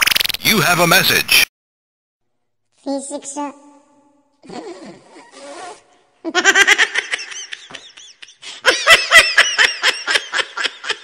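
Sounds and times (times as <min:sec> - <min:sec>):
laughter in rapid bursts: 0:06.3 - 0:11.0.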